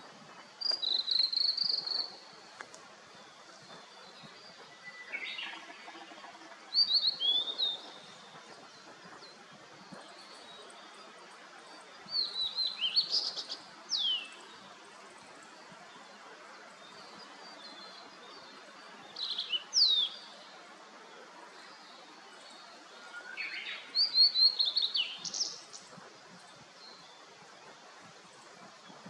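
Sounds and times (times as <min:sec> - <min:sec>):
bird singing whistled notes: 0:00.6 - 0:02.2, 0:03.2 - 0:08.3, 0:12.1 - 0:14.5, 0:23.0 - 0:25.8.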